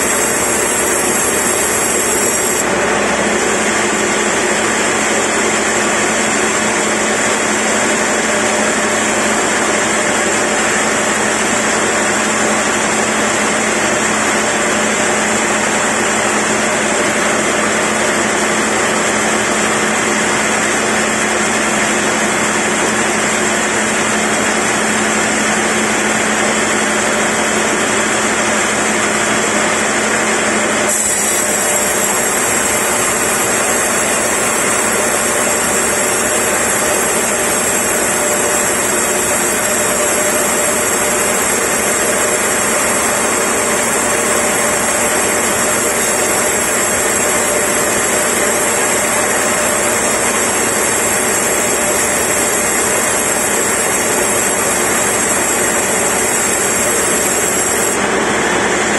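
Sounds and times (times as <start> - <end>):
saw blade rasping in wood: 0.0 - 2.6, 30.9 - 58.0
band saw motor humming: 0.0 - 26.1, 30.6 - 58.2.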